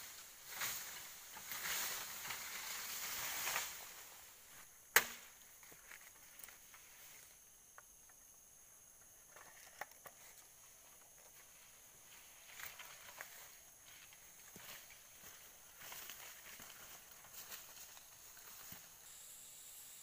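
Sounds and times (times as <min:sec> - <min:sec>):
rustling leaves and undergrowth: 0:00.0 - 0:08.3, 0:08.9 - 0:20.0
machete chop into bamboo: 0:04.9 - 0:05.3.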